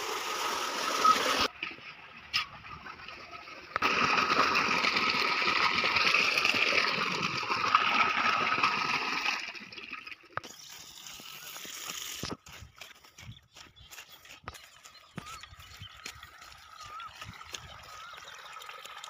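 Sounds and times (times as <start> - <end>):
water gushing into a cement tank: 0.0 - 1.5, 2.7 - 12.4, 15.2 - 19.0.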